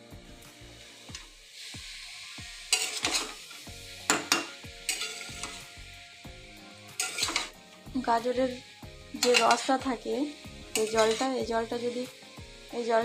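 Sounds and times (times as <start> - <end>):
carrots sizzling in pan: 0.0 - 13.0
metal spatula scraping pan: 2.4 - 5.7, 6.9 - 7.6, 9.2 - 10.1, 10.7 - 12.0.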